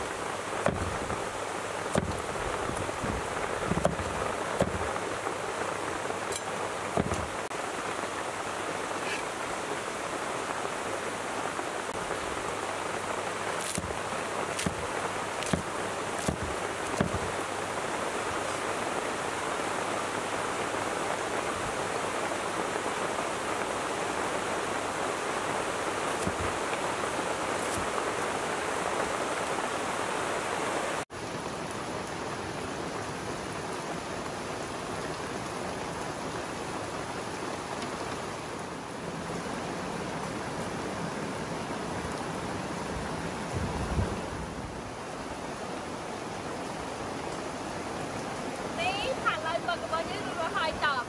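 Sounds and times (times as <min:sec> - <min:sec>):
steady hiss: 0:00.0 - 0:51.0
cleaver chopping on wooden board: 0:00.6 - 0:01.2, 0:01.9 - 0:04.9, 0:07.0 - 0:07.4, 0:13.6 - 0:14.0, 0:14.6 - 0:14.8, 0:15.4 - 0:17.3, 0:26.2 - 0:26.6.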